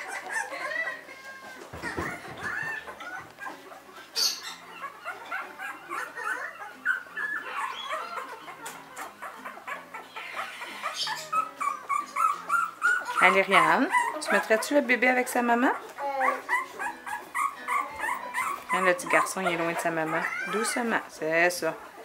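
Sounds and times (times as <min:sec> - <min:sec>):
puppies squeaking and whimpering: 0:00.0 - 0:22.0
knock: 0:01.7 - 0:02.8.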